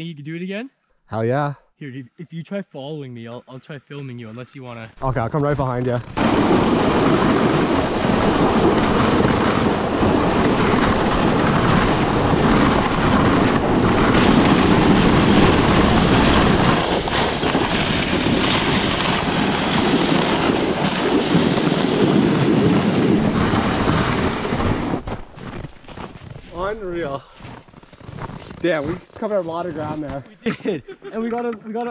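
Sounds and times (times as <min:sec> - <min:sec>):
sled scraping over snow: 0:05.5 - 0:30.4
wind buffeting microphone: 0:06.2 - 0:27.0.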